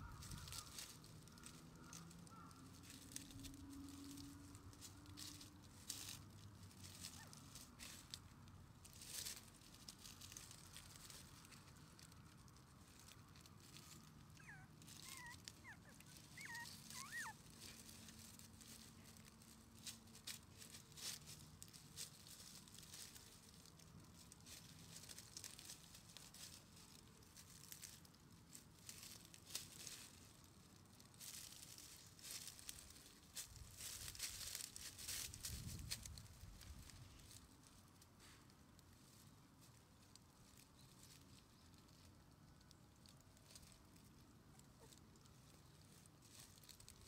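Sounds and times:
faint rustling and patter: 0:00.0 - 0:47.0
puppy squeaking: 0:14.4 - 0:17.5.

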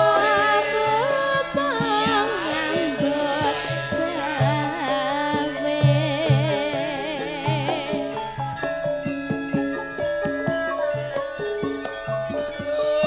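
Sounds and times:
singer with vibrato: 0:00.0 - 0:08.4
ringing metallophone notes: 0:00.0 - 0:13.0.

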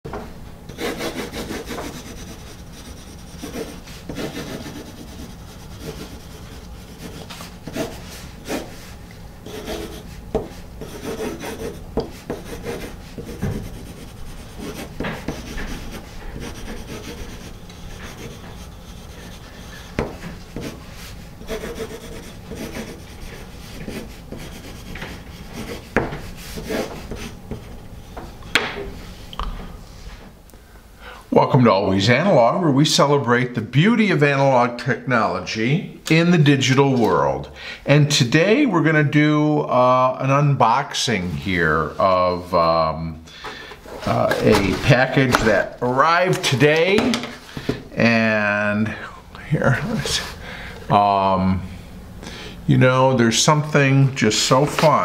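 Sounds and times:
pencil scratching on paper: 0:00.7 - 0:27.7.

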